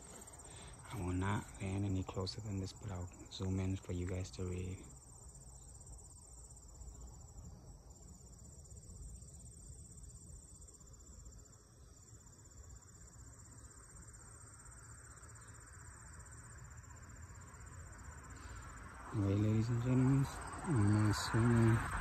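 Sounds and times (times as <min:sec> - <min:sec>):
insects chirring: 0:00.0 - 0:22.0
low microphone rumble: 0:19.2 - 0:22.0.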